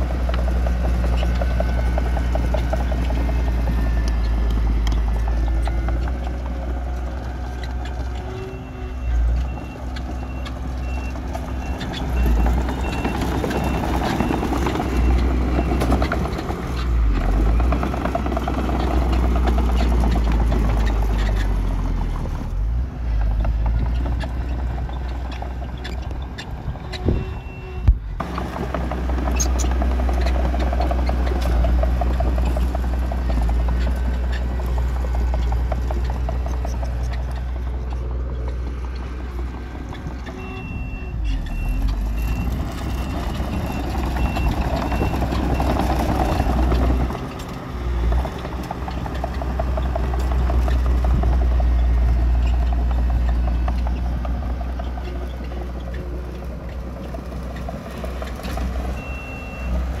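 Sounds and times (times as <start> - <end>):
heavy diesel machines rumbling: 0.0 - 60.0
reversing alarm beeping: 26.9 - 27.9, 40.3 - 47.2, 59.0 - 59.8.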